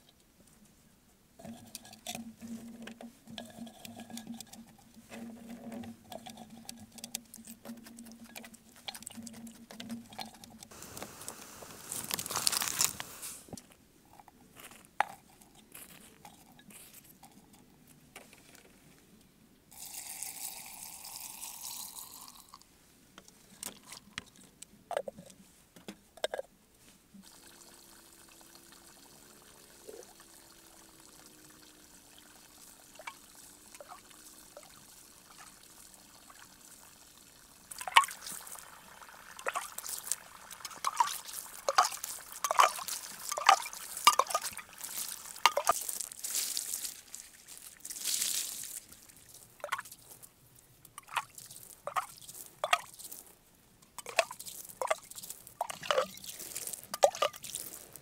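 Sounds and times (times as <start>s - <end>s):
liquid pouring into jar: 1.4s - 10.7s, 12.0s - 13.0s, 19.7s - 22.6s, 27.2s - 50.0s, 51.0s - 53.1s, 54.0s - 57.7s
vegetables knocking and rustling: 9.1s - 13.7s.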